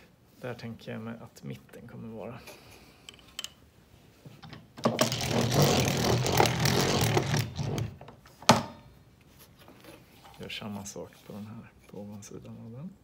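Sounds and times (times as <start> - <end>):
wood scraping on workbench: 5.0 - 8.1.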